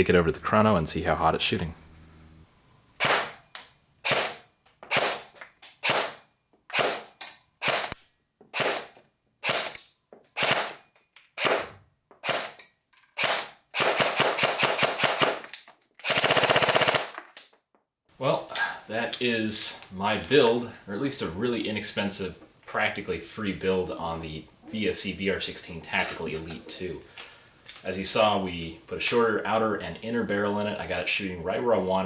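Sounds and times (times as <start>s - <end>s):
gearbox whine: 0.0s - 2.6s
airsoft gun single shots: 3.0s - 3.4s, 4.0s - 8.0s
airsoft gun full-auto bursts: 4.0s - 8.0s, 8.6s - 9.8s, 10.4s - 10.8s, 11.4s - 12.6s, 13.2s - 17.2s.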